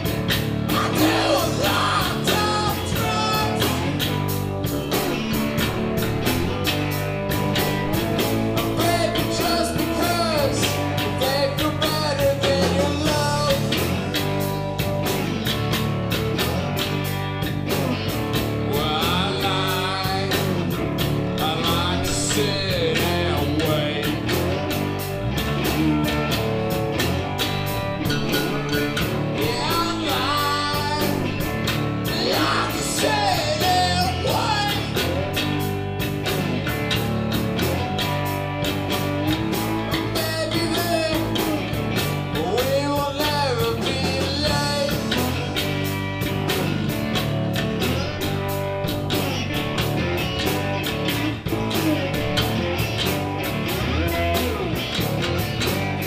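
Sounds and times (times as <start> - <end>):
drum kit beat: 0.0 - 56.0
electric bass: 0.0 - 56.0
electric guitar: 0.0 - 56.0
man singing: 0.6 - 4.1, 8.2 - 14.4, 18.7 - 20.8, 21.4 - 24.7, 28.3 - 35.3, 39.8 - 45.6.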